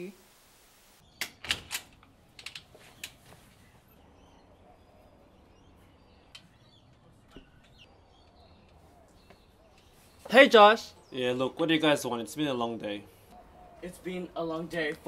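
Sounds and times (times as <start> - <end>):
faint bird chirps: 2.8 - 11.7, 13.0 - 14.6.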